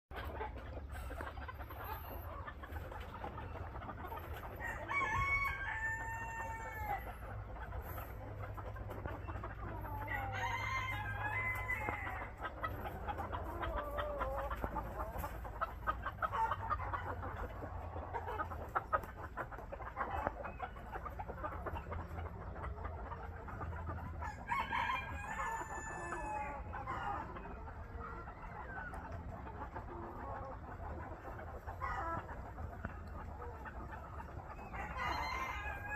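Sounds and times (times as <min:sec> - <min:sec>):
chicken clucking: 0:00.1 - 0:35.9
rooster crowing: 0:04.6 - 0:07.0, 0:10.1 - 0:12.2, 0:34.7 - 0:35.9.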